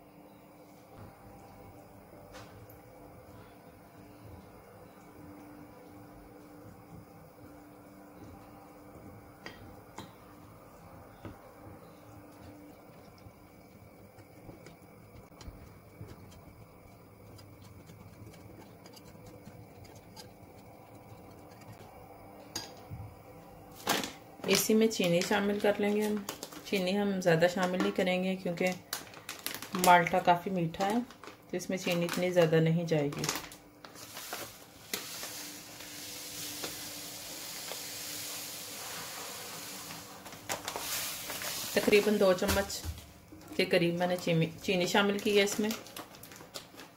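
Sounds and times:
sugar grains pouring: 34.0 - 42.2.

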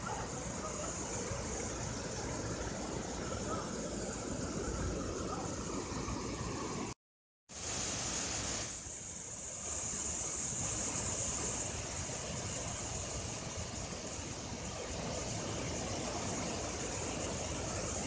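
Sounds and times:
water rushing over a dam: 7.6 - 18.0.

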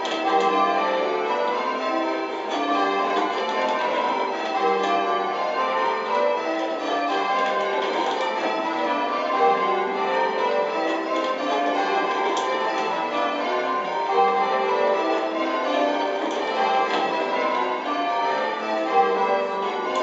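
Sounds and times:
church bells ringing changes: 0.0 - 20.0.

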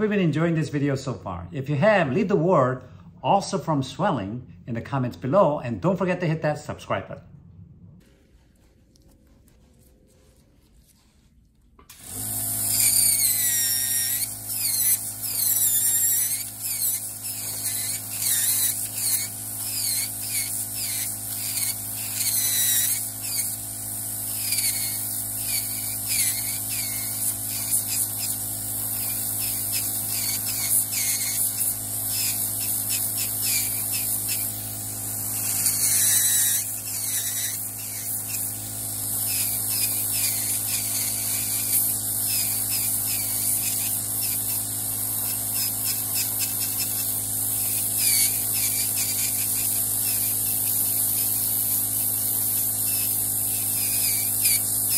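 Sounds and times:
nail drill whining: 11.9 - 54.9.

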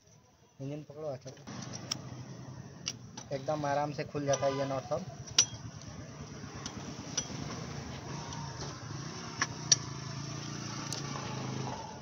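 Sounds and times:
socket wrench clinking on metal: 5.2 - 5.9, 6.6 - 7.6.

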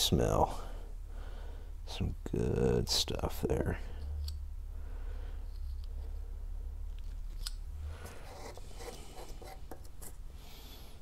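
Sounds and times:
steady low hum: 0.0 - 11.0
metal rubbing over paper: 7.9 - 10.2.

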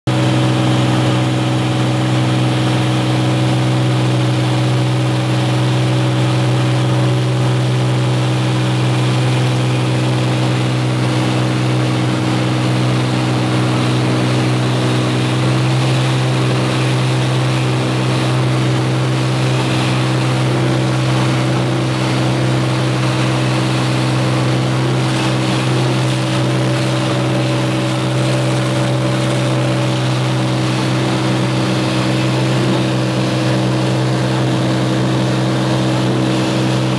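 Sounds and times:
aircraft engine and propeller droning: 0.1 - 36.9.

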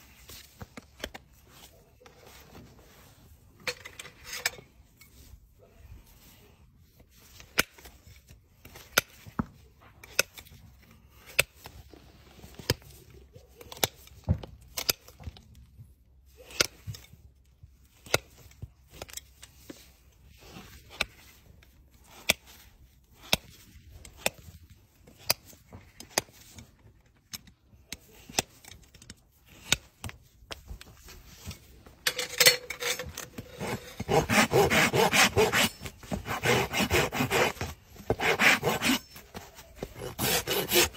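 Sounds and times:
hoof rasp filing: 32.7 - 40.9
hoof nippers snipping: 33.0 - 40.9.

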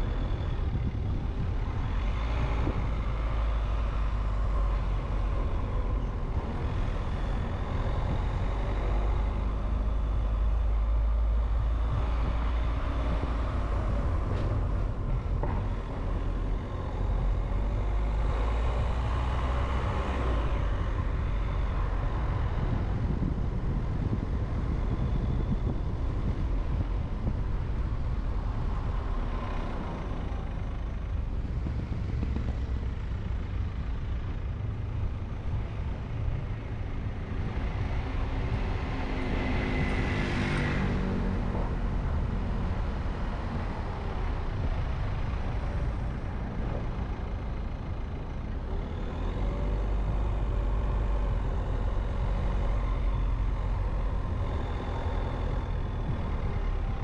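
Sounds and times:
car road and engine rumble: 0.0 - 57.0
vehicles passing: 0.0 - 57.0.

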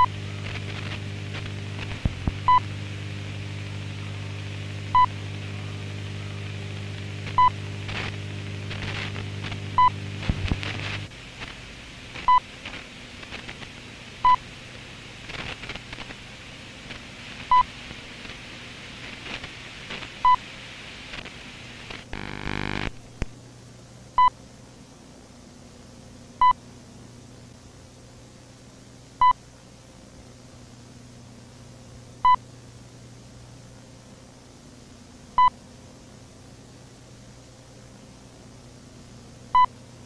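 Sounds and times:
low hum: 0.0 - 11.1, 22.1 - 23.4
burst of static: 0.0 - 13.9, 15.2 - 16.2, 16.8 - 23.3
tape hiss: 0.0 - 40.0
short electronic beeps: 22.2 - 22.9.

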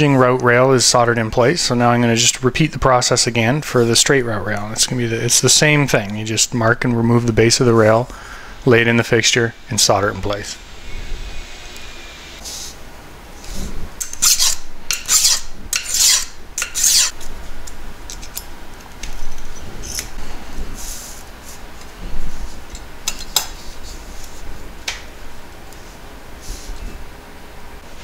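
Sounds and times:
file rasping on metal rail: 14.3 - 17.1.

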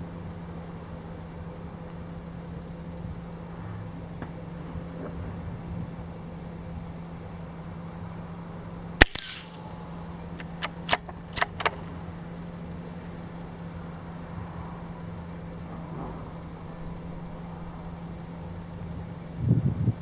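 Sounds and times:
rifle bolt clicking: 9.0 - 9.6, 10.4 - 11.8
rifle shot with echo: 9.0 - 9.7.

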